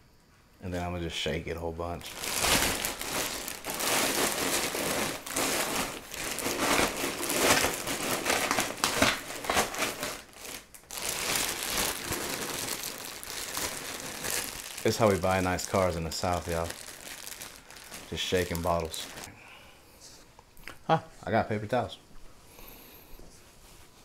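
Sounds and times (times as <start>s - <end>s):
plastic bag crinkling: 1.9s - 19.3s.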